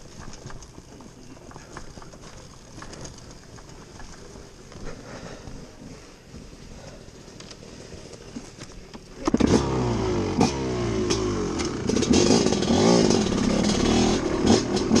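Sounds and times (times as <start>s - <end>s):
dirt bike engine revving: 9.3s - 15.0s.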